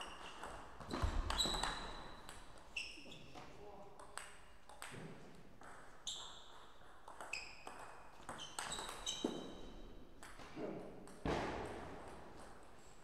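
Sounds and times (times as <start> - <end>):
table tennis ball pinging: 4.0 - 9.5.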